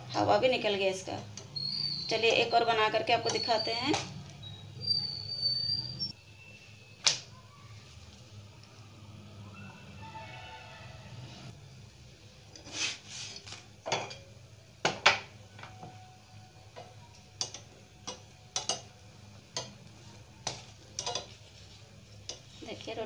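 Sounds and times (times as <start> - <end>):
metal utensils clicking: 16.8 - 21.4, 22.1 - 22.5.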